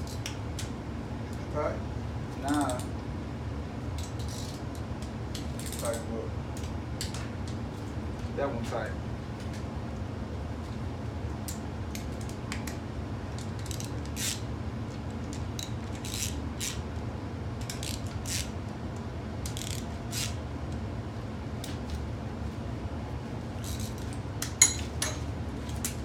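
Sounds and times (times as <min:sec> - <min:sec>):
steady low hum: 0:00.0 - 0:26.0
ratchet wrench clicking: 0:19.4 - 0:20.4.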